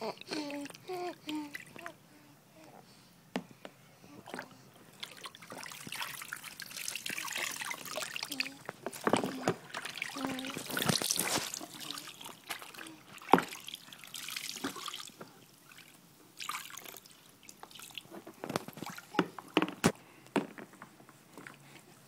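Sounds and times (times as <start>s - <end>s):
bathwater splashing and trickling: 0.1s - 2.0s, 4.2s - 19.8s
water drips: 4.3s - 19.2s.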